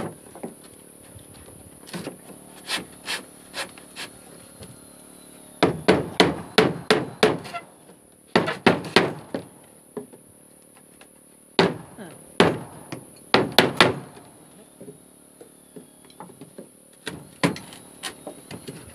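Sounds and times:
hammer nailing floorboards: 0:05.6 - 0:07.6, 0:08.4 - 0:09.6, 0:11.6 - 0:14.3, 0:17.0 - 0:18.9.

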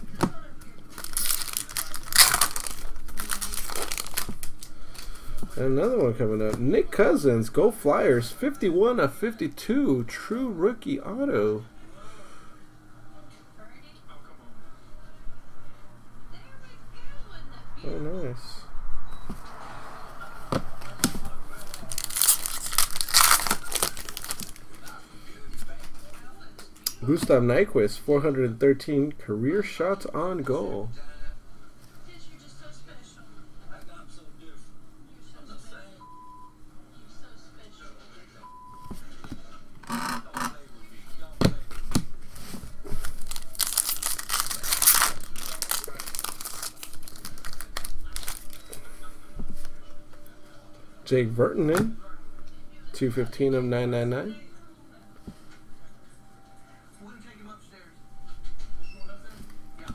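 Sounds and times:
foil wrapper crinkling and tearing: 0:00.9 - 0:05.1, 0:21.6 - 0:25.0, 0:42.9 - 0:48.9.

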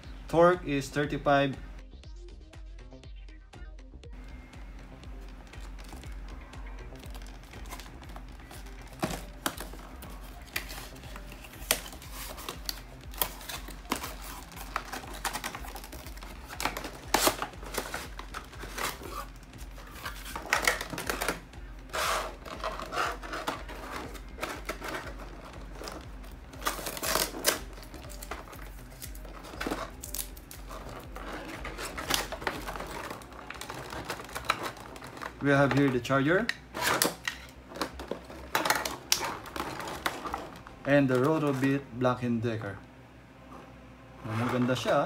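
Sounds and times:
plastic and card crinkling: 0:05.5 - 0:41.8.

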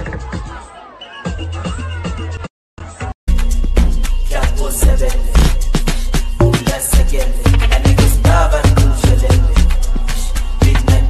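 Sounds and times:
dance music with deep bass: 0:03.3 - 0:11.0.

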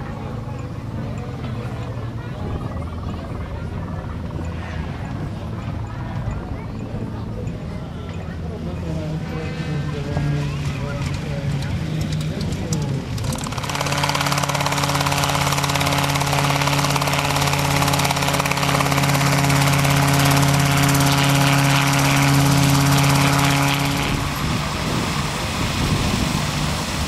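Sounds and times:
helicopter hovering: 0:00.0 - 0:27.0.

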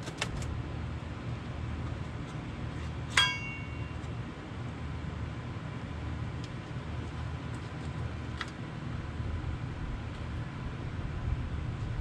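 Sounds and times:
low background rumble: 0:00.0 - 0:12.0
metal clinks: 0:03.1 - 0:04.0.

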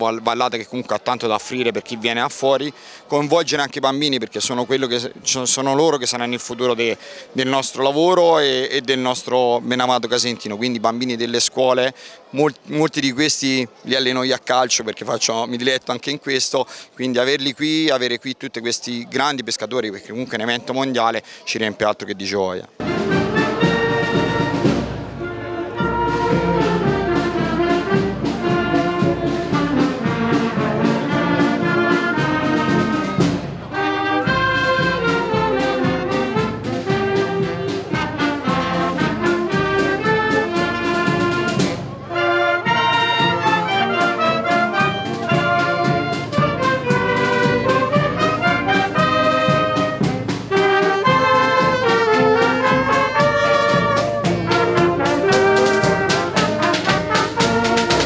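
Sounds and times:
wind band playing: 0:22.8 - 0:58.0.

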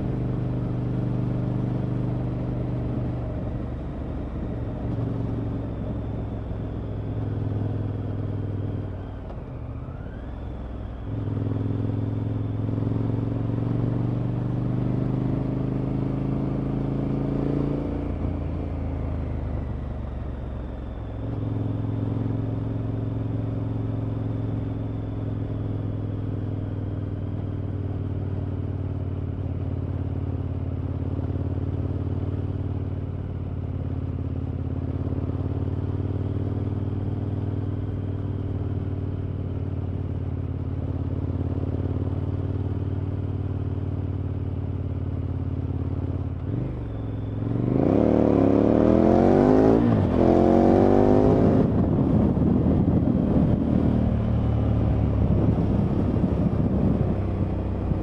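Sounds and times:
motorcycle engine revving: 0:44.8 - 0:58.0.

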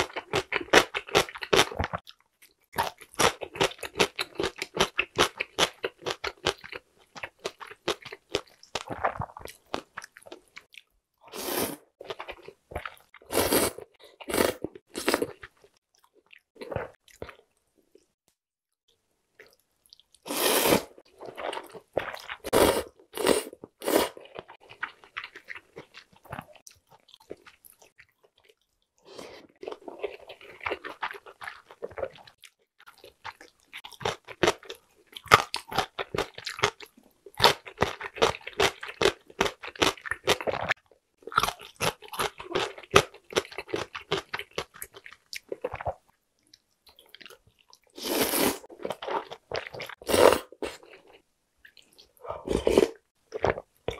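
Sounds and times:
slurping noodles: 0:11.2 - 0:12.0, 0:13.3 - 0:15.3, 0:20.2 - 0:24.3, 0:48.0 - 0:50.9, 0:52.2 - 0:53.0
chewing: 0:29.5 - 0:47.9.

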